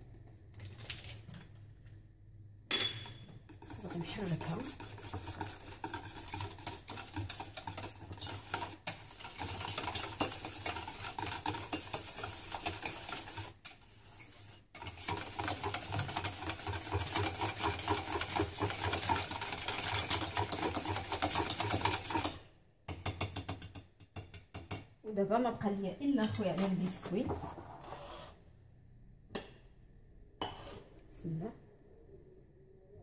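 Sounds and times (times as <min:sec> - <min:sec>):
utensil stirring in steel saucepan: 0:03.3 - 0:24.9.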